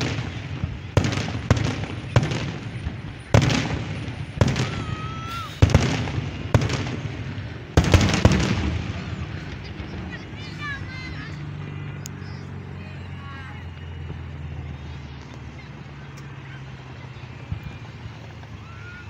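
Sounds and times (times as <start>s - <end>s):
fireworks bursting with bangs: 0.0s - 12.4s.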